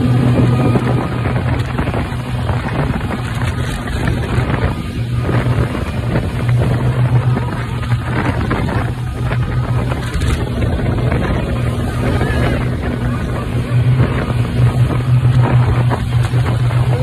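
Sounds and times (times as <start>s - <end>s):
speedboat engine running: 0.0s - 17.0s
water rushing from hull: 0.0s - 17.0s
wind buffeting microphone: 0.0s - 17.0s.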